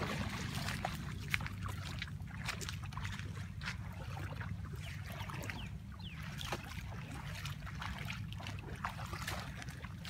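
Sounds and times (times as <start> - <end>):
feet splashing in shallow water: 0.0 - 10.0.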